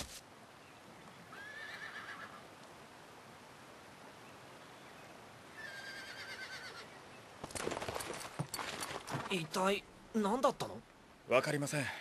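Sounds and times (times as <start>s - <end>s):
horse whinnying: 1.3s - 2.4s, 5.6s - 6.9s.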